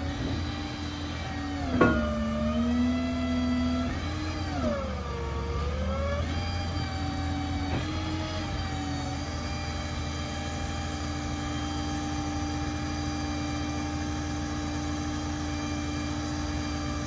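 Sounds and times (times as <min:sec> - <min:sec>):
hydraulic pump whining: 0:00.0 - 0:17.0
sharp metallic clunk: 0:01.7 - 0:02.6.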